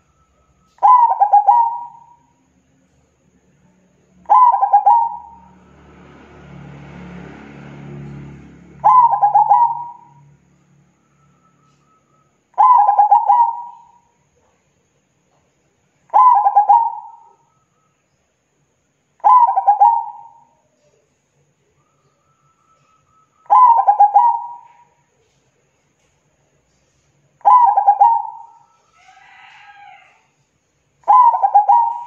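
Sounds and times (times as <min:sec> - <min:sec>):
dove cooing: 0:00.7 - 0:02.2, 0:04.3 - 0:05.5, 0:08.8 - 0:10.2, 0:12.6 - 0:14.1, 0:16.1 - 0:17.5, 0:19.2 - 0:20.6, 0:23.5 - 0:25.0, 0:27.4 - 0:29.8, 0:31.1 - 0:32.0.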